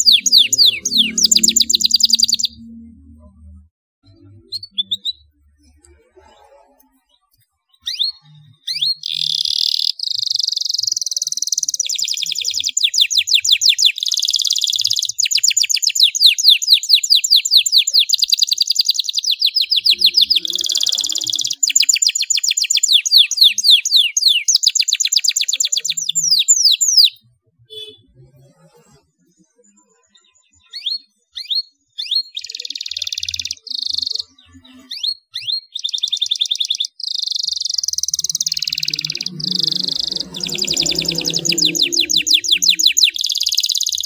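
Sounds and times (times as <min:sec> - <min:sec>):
canary singing trills: 0:00.0 - 0:44.0.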